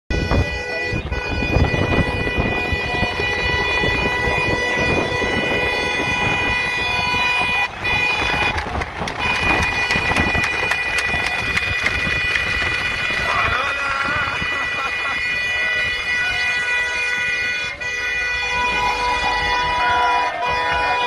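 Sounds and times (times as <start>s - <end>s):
vehicle horn blast: 0.1s - 21.0s
wind through open car window: 0.2s - 16.0s.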